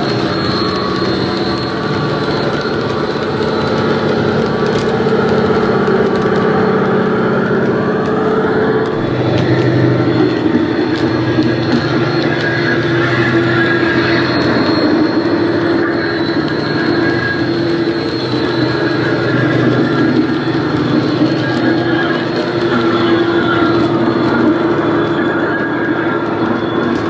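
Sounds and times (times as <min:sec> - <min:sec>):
diesel engine droning: 0:00.0 - 0:27.0
high whistle: 0:00.0 - 0:27.0.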